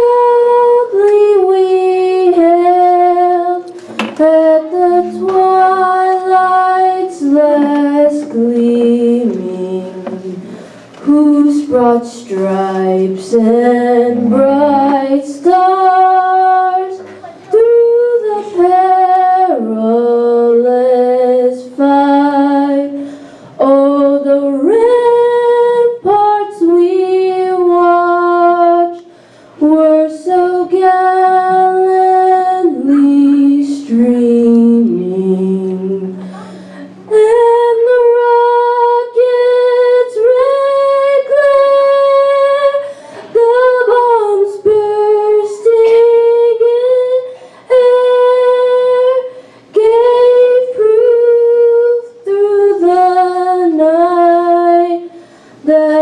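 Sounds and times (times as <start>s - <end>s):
woman singing unaccompanied: 0.0s - 56.0s
singer breathing: 10.4s - 11.0s, 23.0s - 23.6s, 29.1s - 29.6s, 36.2s - 37.0s, 42.8s - 43.4s, 47.3s - 47.7s, 49.3s - 49.7s, 55.1s - 55.7s.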